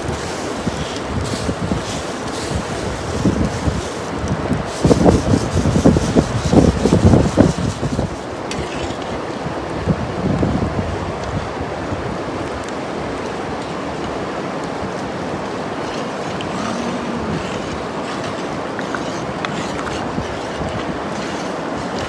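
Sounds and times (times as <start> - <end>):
steady rushing noise: 0.0 - 22.0.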